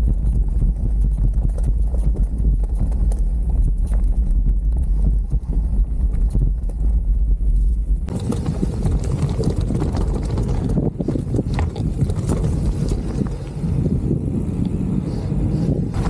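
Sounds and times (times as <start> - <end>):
wind rumbling on microphone: 0.0 - 16.0
tyres rolling on dirt: 8.1 - 14.6
mountain bike clattering: 8.1 - 15.3.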